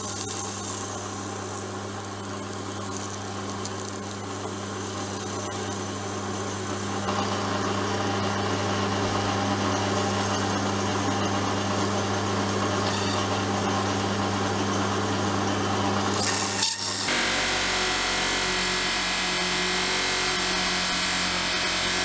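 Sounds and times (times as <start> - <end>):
electric motor humming: 0.0 - 11.4, 16.2 - 22.0
machine running with bright hiss: 0.0 - 22.0.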